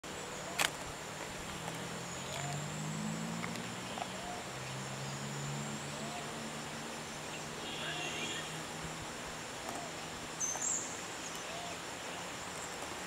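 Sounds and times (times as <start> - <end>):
high insect drone: 0.0 - 13.0.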